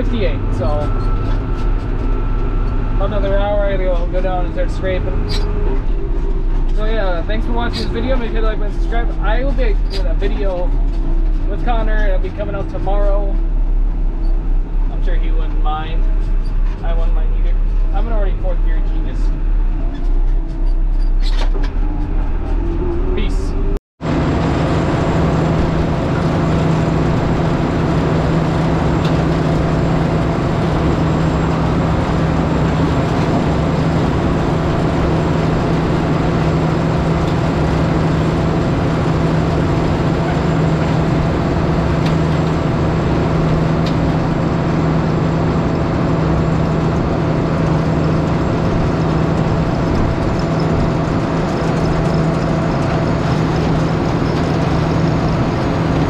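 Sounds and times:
tractor engine running: 0.0s - 56.0s.

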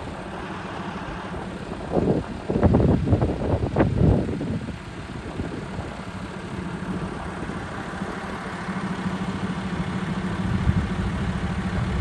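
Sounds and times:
vehicle engine humming: 0.0s - 12.0s.

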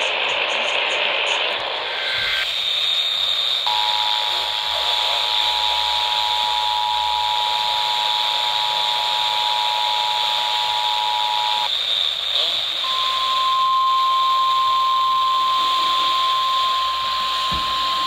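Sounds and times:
radio static hiss: 0.0s - 18.0s
two-tone alert signal: 12.8s - 18.0s.

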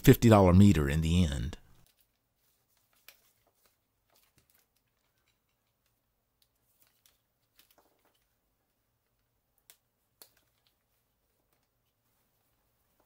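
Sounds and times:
faint plastic clicks: 9.0s - 12.0s.

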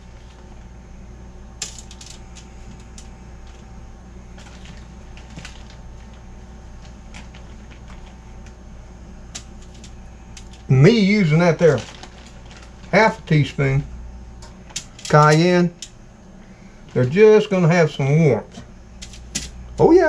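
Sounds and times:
steady low hum: 0.0s - 20.0s
plastic bag crinkling: 4.4s - 8.5s, 11.6s - 13.3s.

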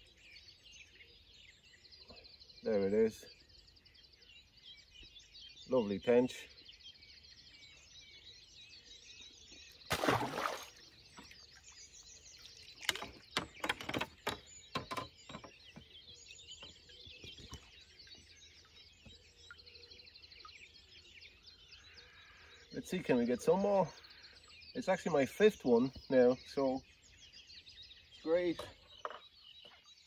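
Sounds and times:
birds singing and chirping: 0.0s - 30.0s
fish splashing into water: 9.9s - 11.5s
sharp clicks and knocks: 12.8s - 15.8s.

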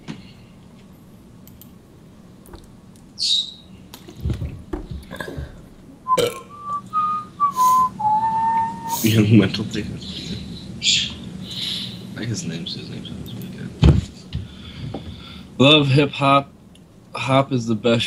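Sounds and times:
low throaty mouth sound: 5.1s - 8.9s
man whistling a tune: 6.1s - 9.1s.

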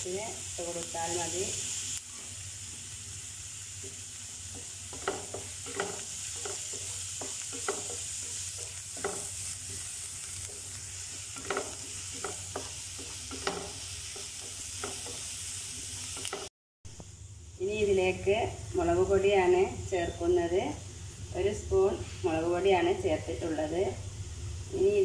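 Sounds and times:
vegetables sizzling in oil: 0.0s - 25.0s
wooden spatula scraping pan: 4.6s - 15.3s.

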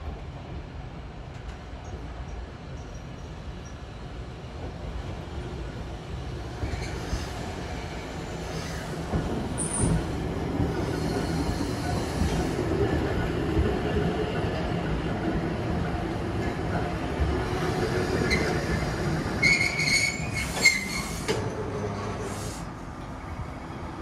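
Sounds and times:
tram wheels and motor rumbling: 0.0s - 24.0s
high wheel squeals: 19.4s - 21.4s.

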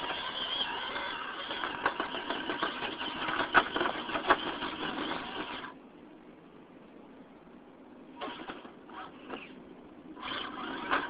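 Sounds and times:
electric motor whining: 0.0s - 5.7s, 10.2s - 11.0s.

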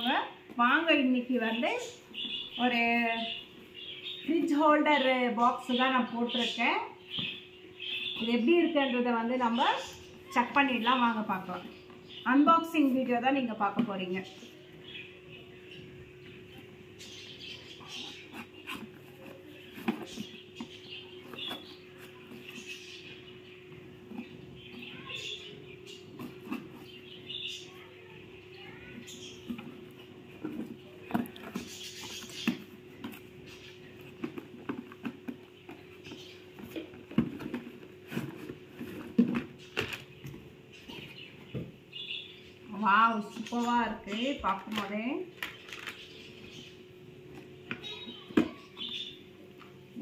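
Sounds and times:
cardboard and tape being handled: 17.6s - 23.2s, 24.0s - 27.9s, 28.6s - 41.2s
cardboard box scratching and rustling: 17.9s - 23.0s.

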